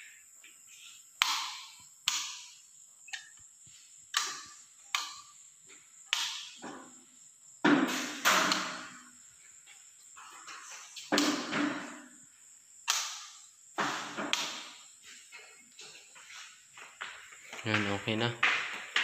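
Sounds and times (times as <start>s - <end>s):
footsteps on tiled floor: 15.0s - 19.0s.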